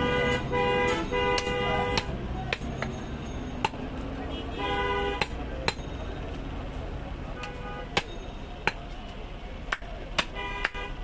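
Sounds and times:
vehicle horn: 0.0 - 2.2, 4.3 - 5.3, 7.4 - 8.0, 10.4 - 11.0
knife chopping meat on wood: 5.2 - 5.8, 9.7 - 10.9.

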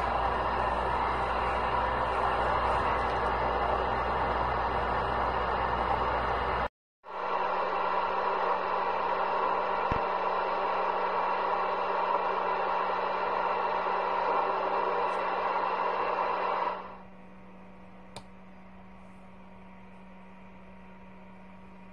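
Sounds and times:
radio static hiss: 7.2 - 17.0
click: 18.1 - 18.3.

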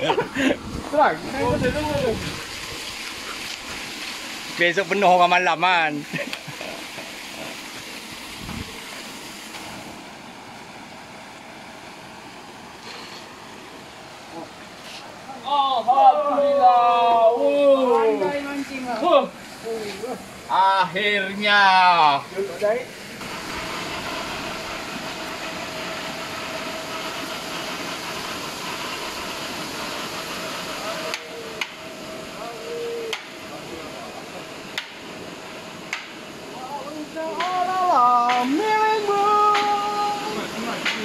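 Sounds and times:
paddlewheel aerator churning water: 0.0 - 41.0
steady machine noise: 20.2 - 41.0.

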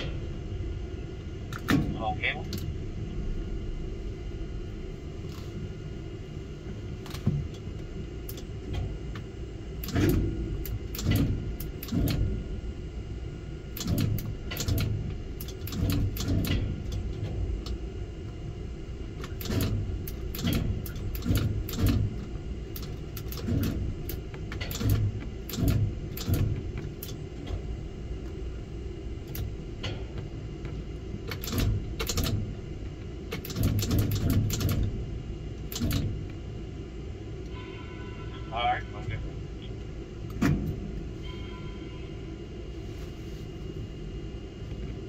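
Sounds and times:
machinery rumble: 0.0 - 45.0
sharp clicks and knocks: 9.8 - 12.3, 13.8 - 17.8, 19.2 - 27.6.

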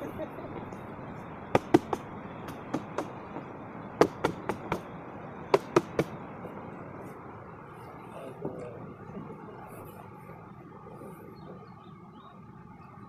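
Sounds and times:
steady rushing background: 1.1 - 7.7.

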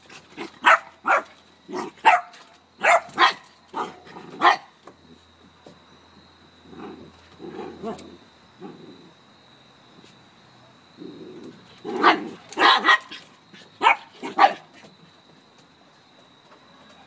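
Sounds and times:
small dog barking sharply: 2.0 - 4.7, 12.0 - 13.1
dogs play growling: 6.6 - 9.2, 10.9 - 15.0.

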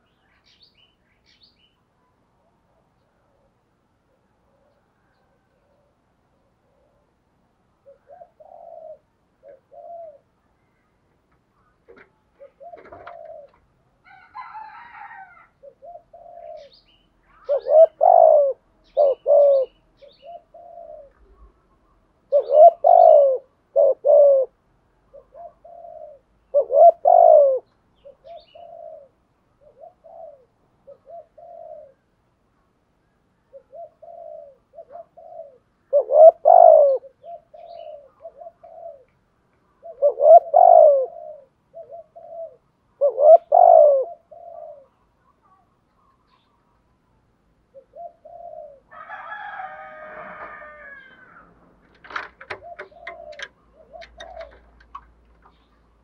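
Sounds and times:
dove cooing: 2.4 - 10.5, 11.6 - 32.2, 33.0 - 46.8, 47.7 - 56.0.

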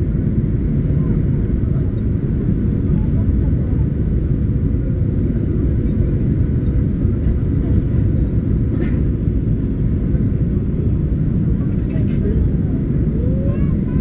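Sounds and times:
airplane cabin engine rumble: 0.0 - 14.0.

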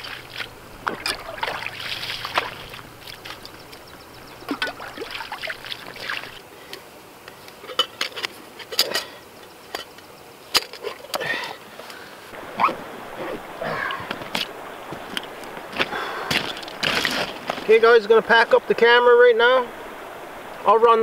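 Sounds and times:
water sloshing in a pan: 0.0 - 3.8, 4.4 - 6.4
camp cookware clinking: 7.5 - 11.4.

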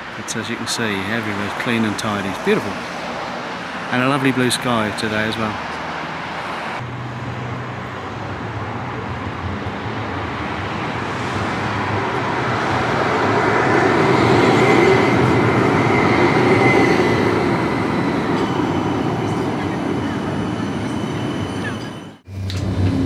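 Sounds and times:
tram rolling past: 0.0 - 23.0.

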